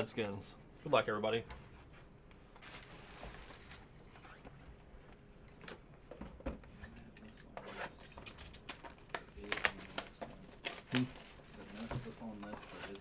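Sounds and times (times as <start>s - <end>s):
plastic wrap rustling: 2.5s - 4.5s, 7.7s - 13.0s.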